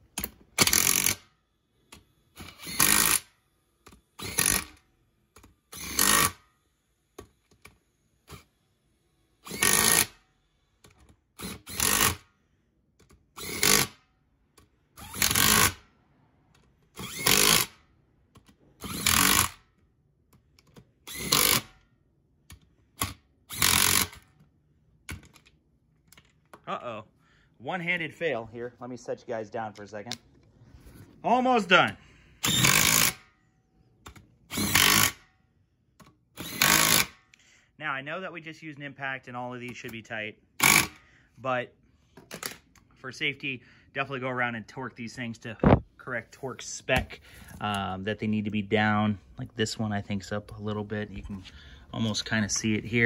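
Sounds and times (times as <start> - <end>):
impact tool hammering bolts: 32.4 - 33.2.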